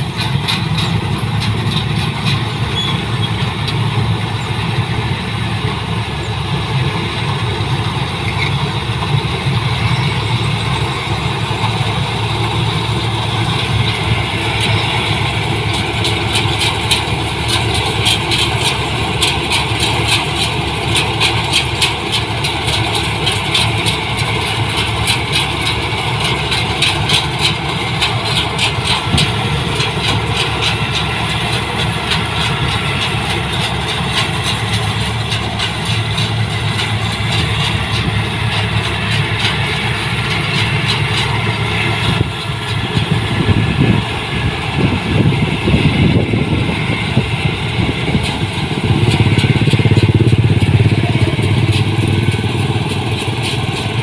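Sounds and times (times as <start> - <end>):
combine harvester running: 0.0 - 54.0
fast rattling: 48.2 - 54.0.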